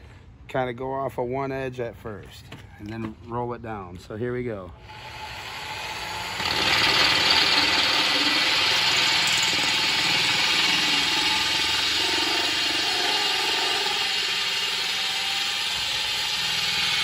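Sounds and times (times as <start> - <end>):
drill whirring: 4.8 - 17.0
hole saw grinding glass: 5.0 - 17.0.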